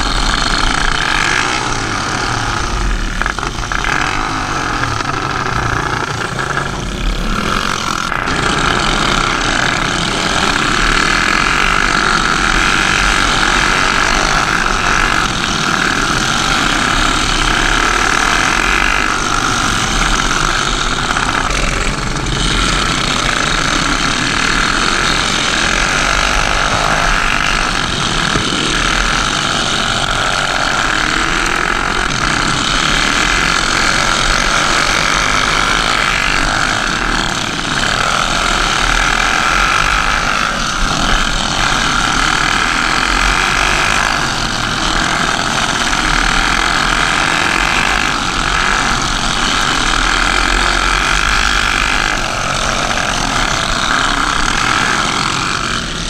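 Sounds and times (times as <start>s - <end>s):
go-kart engine running hard: 0.0s - 56.0s
other karts racing nearby: 0.0s - 56.0s.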